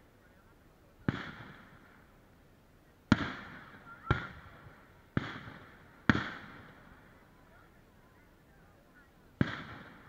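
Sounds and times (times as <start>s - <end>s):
fireworks bangs echoing: 1.0s - 2.0s, 3.1s - 7.1s, 9.4s - 10.0s.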